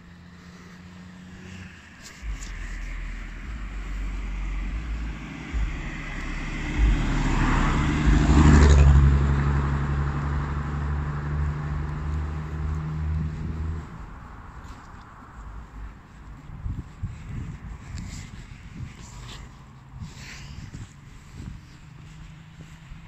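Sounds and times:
car driving past: 0.0s - 15.8s
engine hum: 0.0s - 23.0s.

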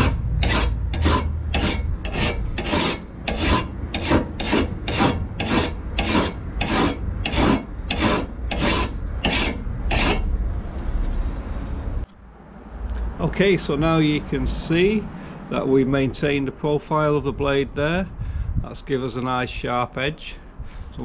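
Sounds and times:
file rasping on steel blade: 0.0s - 10.3s.

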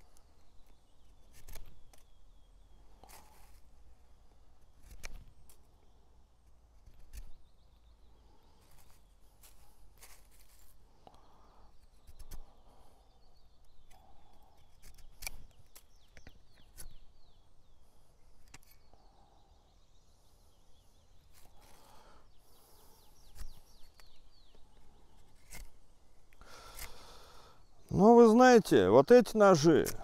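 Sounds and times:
birds chirping faintly: 0.0s - 30.0s
knife cutting wood: 1.2s - 2.2s, 4.6s - 5.7s, 13.8s - 17.0s, 18.4s - 18.9s, 22.6s - 27.3s, 29.8s - 30.0s
soft rustles: 8.6s - 10.9s.

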